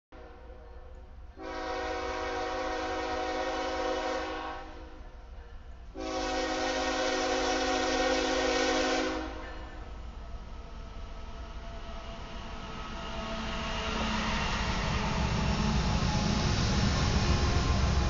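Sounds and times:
locomotive air horn blasts: 0:01.4 - 0:05.0, 0:05.9 - 0:09.6.

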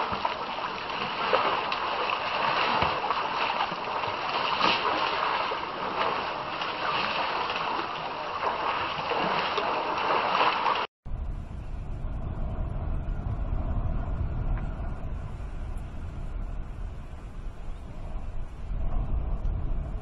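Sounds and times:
water splashing and sloshing: 0:00.0 - 0:10.9
low steady rumble: 0:11.1 - 0:20.0.

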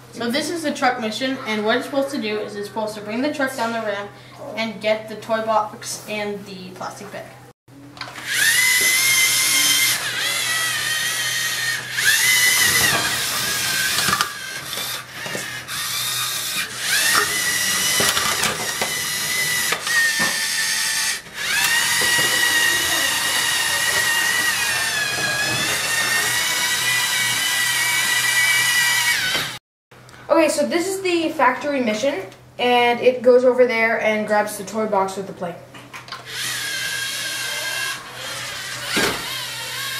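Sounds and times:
robot electric motors whining: 0:08.0 - 0:29.6, 0:36.1 - 0:39.9.

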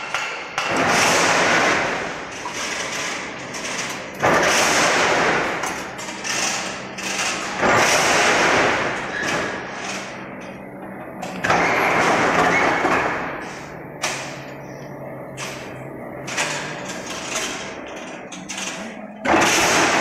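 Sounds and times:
machine clattering: 0:00.0 - 0:14.4, 0:15.3 - 0:20.0
motor hum: 0:01.0 - 0:20.0.

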